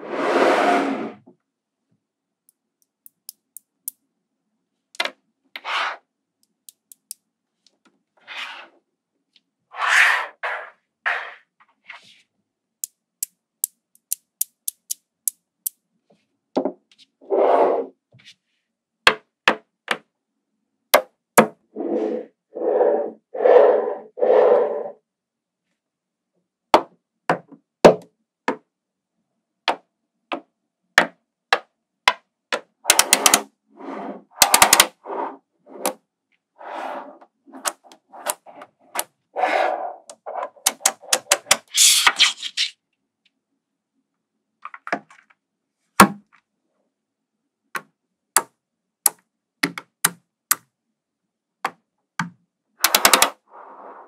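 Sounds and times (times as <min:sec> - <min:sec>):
magnetic balls clicking: 0:06.4 - 0:07.2, 0:12.8 - 0:15.8.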